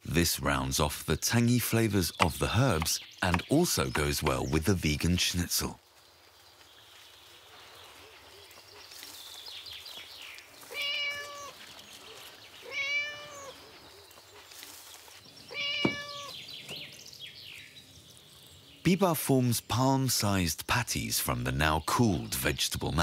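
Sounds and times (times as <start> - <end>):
cat meowing: 10.7 - 11.6, 12.6 - 13.7, 15.5 - 16.4.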